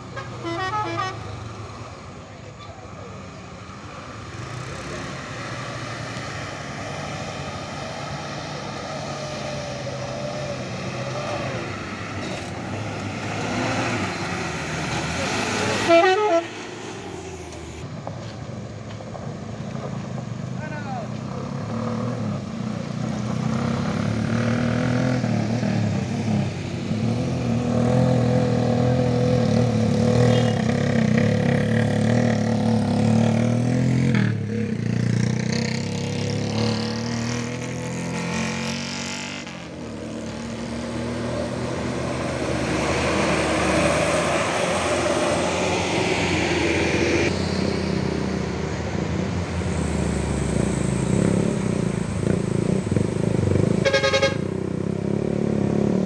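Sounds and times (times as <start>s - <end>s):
bus engine: 0.0s - 56.0s
diesel truck engine under load: 3.3s - 20.5s
car engine on gravel road: 3.7s - 24.0s
motorcycle engine: 19.2s - 56.0s.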